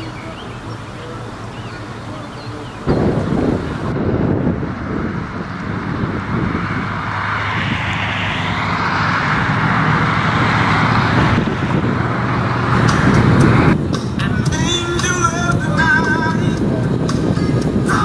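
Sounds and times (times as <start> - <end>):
pickup truck engine: 0.0 - 18.0
road and tyre noise: 0.0 - 18.0.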